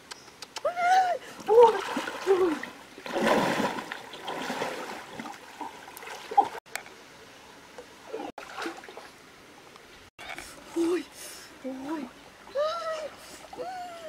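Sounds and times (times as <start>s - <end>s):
stream trickling: 1.0s - 14.0s
water splashing: 1.2s - 6.6s, 8.0s - 9.2s.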